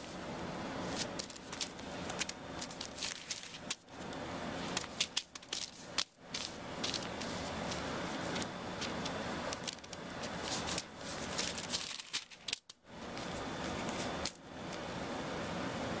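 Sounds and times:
paper rustling and crinkling: 0.8 - 3.9, 4.6 - 14.4
kitten scrambling on paper: 0.9 - 3.8, 4.6 - 14.4.

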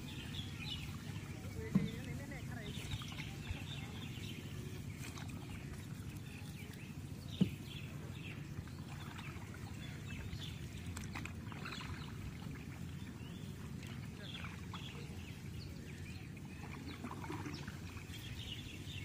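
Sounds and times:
water rushing: 7.4 - 19.0.

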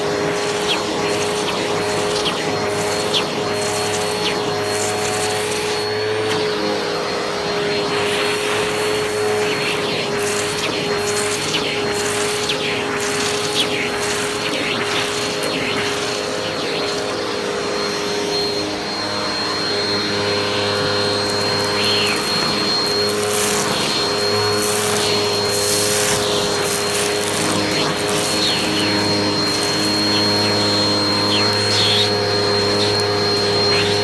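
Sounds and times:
vacuum cleaner running: 0.0 - 34.0
debris rattling into nozzle: 20.6 - 34.0.

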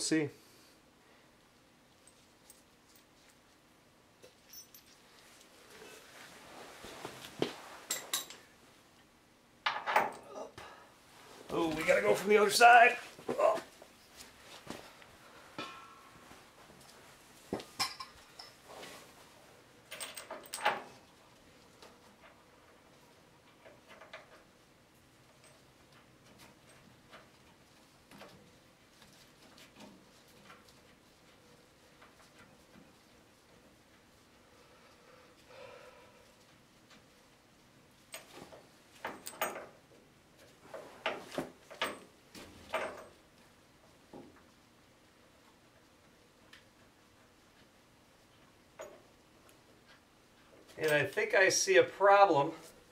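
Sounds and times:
metal tools clinking: 4.2 - 5.0, 7.9 - 8.5, 17.8 - 18.6.

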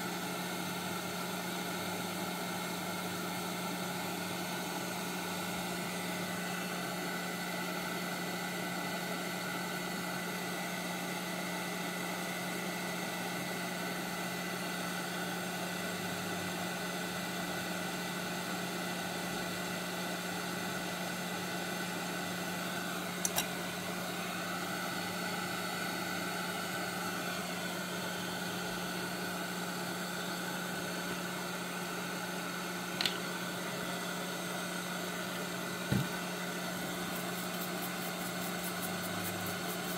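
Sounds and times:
small electric fan motor whirring: 19.0 - 39.9.

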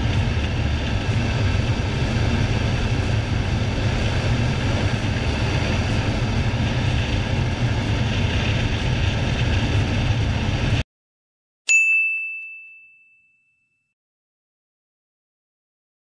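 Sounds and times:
motorcycle engine running flat out: 0.0 - 10.8
wind noise: 0.0 - 10.8
bright bell-like ding: 11.7 - 14.0.

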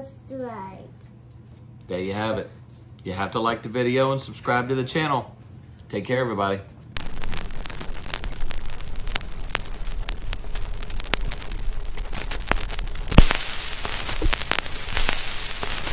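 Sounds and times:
film crackle hiss: 6.0 - 15.9
sharp pops and clicks: 6.8 - 15.9.

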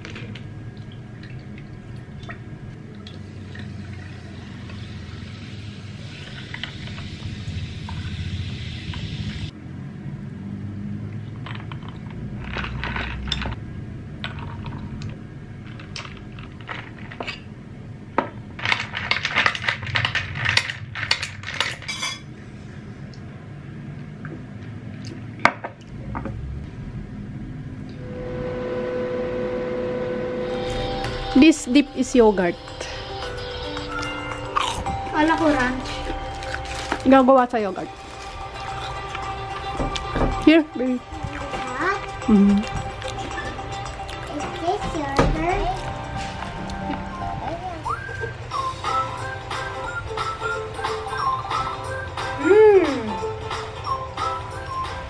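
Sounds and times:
steady hiss: 4.6 - 9.5
dishes and cutlery clinking: 21.1 - 22.3.

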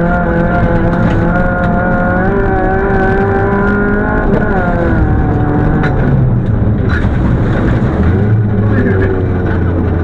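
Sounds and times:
rally car engine at full throttle: 0.0 - 10.0.

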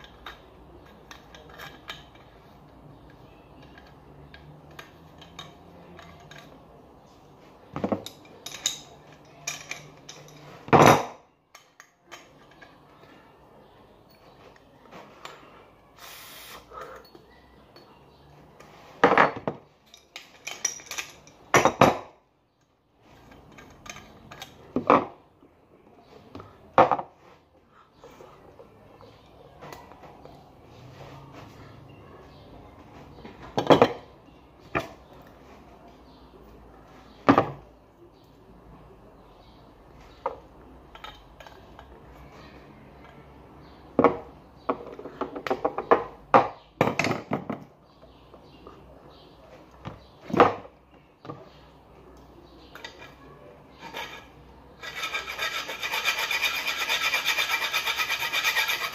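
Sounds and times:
metal faucet parts clinking: 0.0 - 6.7, 7.8 - 13.1, 19.8 - 21.8, 23.2 - 24.7, 40.9 - 42.0.

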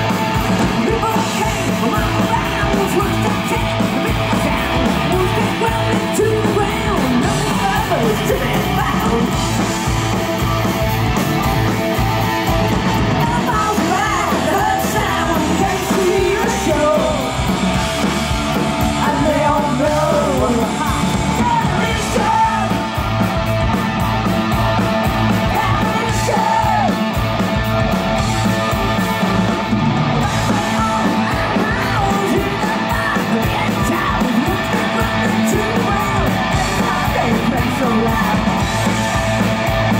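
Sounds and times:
drums: 0.0 - 39.9
electric guitars: 0.0 - 39.9
woman singing: 0.6 - 9.4, 13.2 - 17.4, 18.9 - 22.8, 25.4 - 27.0, 30.2 - 38.7.

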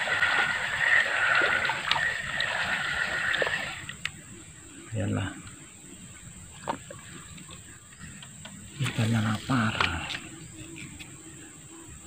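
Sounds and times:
fish splashing in water: 0.0 - 4.0
fishing reel whirring: 0.0 - 4.1.

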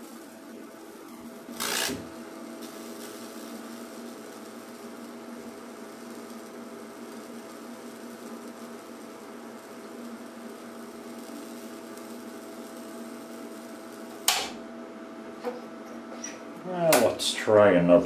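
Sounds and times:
high-voltage arcing on wood: 0.0 - 14.8
loud sharp crack: 14.2 - 14.6.

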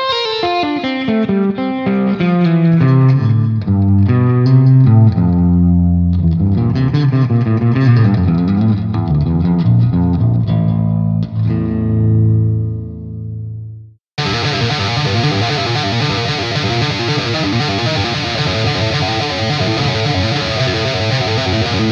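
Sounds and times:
electric guitar playing: 0.0 - 13.6, 14.2 - 21.9.

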